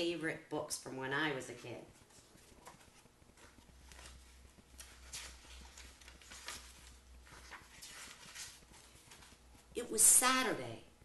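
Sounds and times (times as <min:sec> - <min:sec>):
low steady hum: 0:00.0 - 0:11.0
book pages turning: 0:02.0 - 0:09.7.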